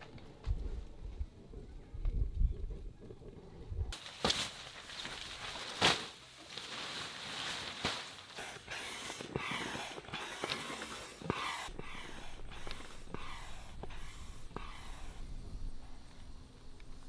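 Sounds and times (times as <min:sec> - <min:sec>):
hand pump rushing air: 0:08.2 - 0:16.0.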